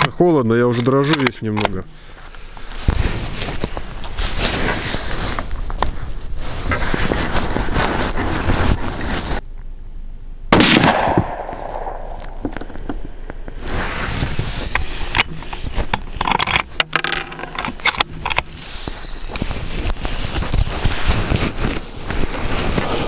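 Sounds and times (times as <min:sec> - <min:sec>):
rifle shot with echo: 0:10.5 - 0:12.4
wind noise: 0:10.8 - 0:23.0.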